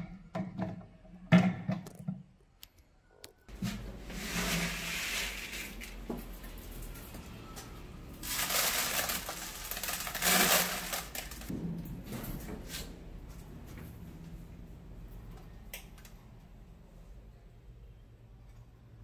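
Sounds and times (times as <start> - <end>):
dry grain pattering: 8.2 - 11.5.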